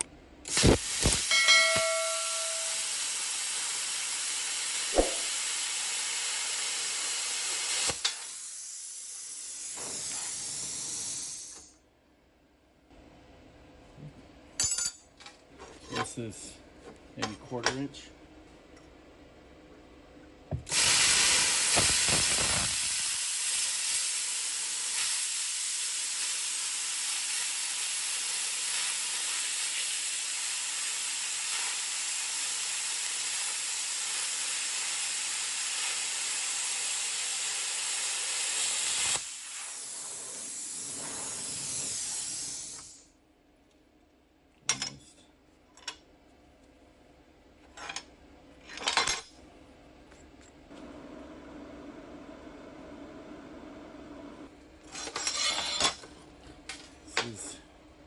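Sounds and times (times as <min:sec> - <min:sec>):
plasma cutter hissing: 0:00.0 - 0:11.7, 0:20.7 - 0:43.1.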